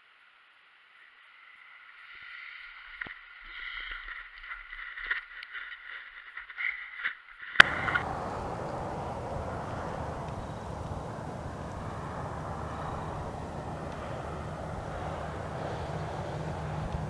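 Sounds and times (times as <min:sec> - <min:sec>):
muffled wind rush: 0:07.6 - 0:17.0.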